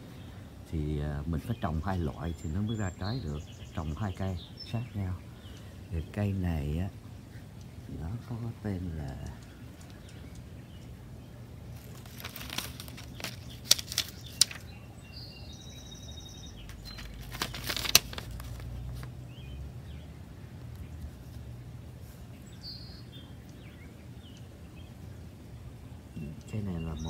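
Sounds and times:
bird chirping: 0:00.0 - 0:27.0
low outdoor rumble: 0:00.0 - 0:27.0
plastic label crinkling: 0:11.6 - 0:14.8, 0:16.6 - 0:19.2.

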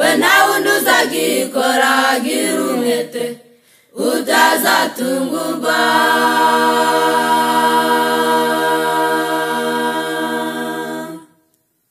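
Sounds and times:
choir holding chord: 0:00.0 - 0:03.4, 0:04.0 - 0:11.5.

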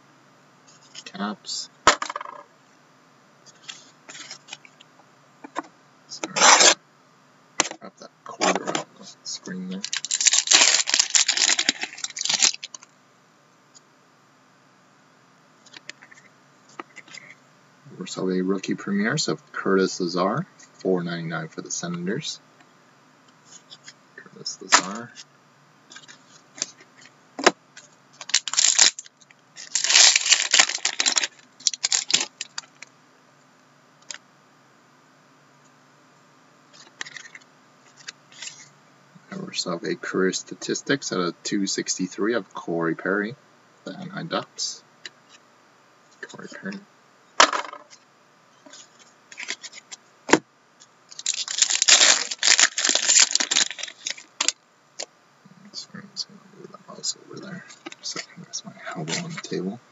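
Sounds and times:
card pack wrapper tearing and crinkling: 0:09.8 - 0:12.8, 0:28.2 - 0:32.8, 0:36.8 - 0:37.4, 0:49.3 - 0:49.9, 0:51.1 - 0:54.6
trading cards shuffling: 0:29.6 - 0:32.7.

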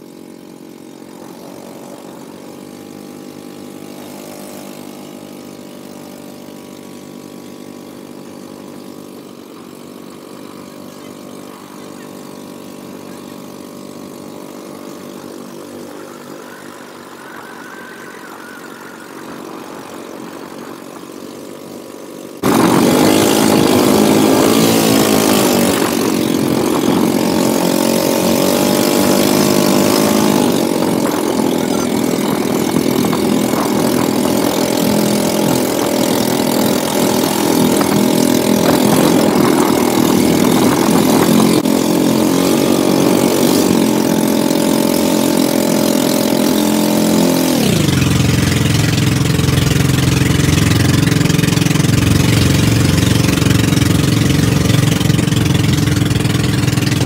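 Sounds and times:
boat engine running: 0:00.0 - 0:57.0
rushing noise: 0:14.7 - 0:32.0.

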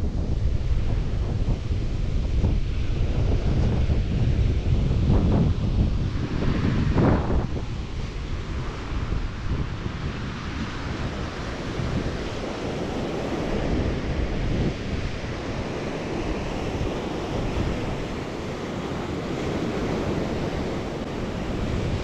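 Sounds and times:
wind buffeting microphone: 0:00.0 - 0:22.0
ocean surf breaking: 0:05.6 - 0:22.0.

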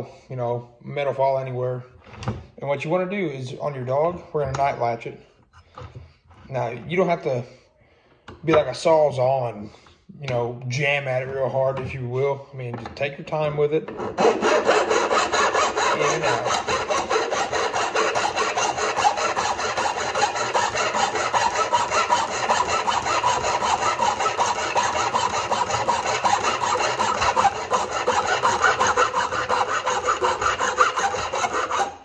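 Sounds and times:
metal file rasping on steel: 0:13.9 - 0:32.0.

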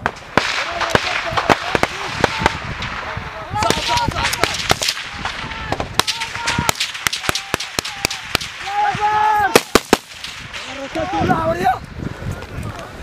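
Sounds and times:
gunshots: 0:00.0 - 0:08.8, 0:09.5 - 0:11.0
men calling out: 0:03.3 - 0:09.8.

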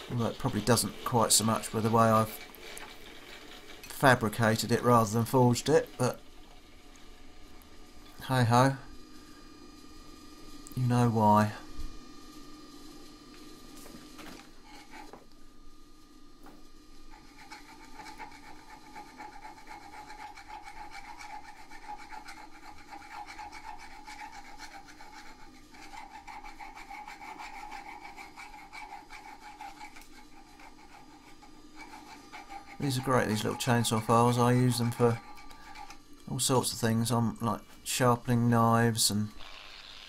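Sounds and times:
file rasping on steel: 0:14.6 - 0:15.2, 0:17.1 - 0:36.0.

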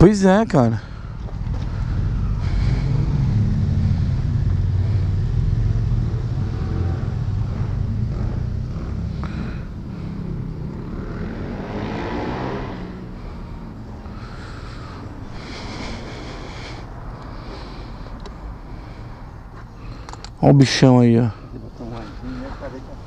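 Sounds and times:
vehicle engine humming: 0:00.1 - 0:23.0
rushing noise: 0:01.7 - 0:19.5.

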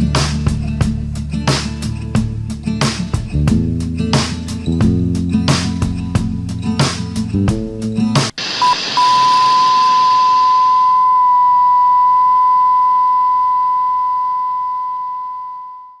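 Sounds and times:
static hiss: 0:08.2 - 0:11.0
steady pure tone: 0:08.4 - 0:16.0
short beep: 0:08.6 - 0:16.0.

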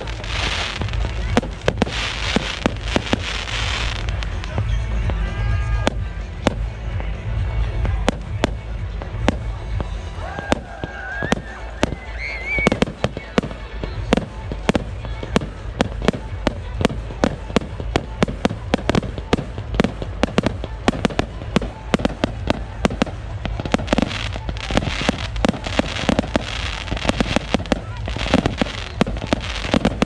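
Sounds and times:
fireworks hissing: 0:00.0 - 0:06.7, 0:07.9 - 0:30.0
fireworks bangs: 0:00.0 - 0:30.0.

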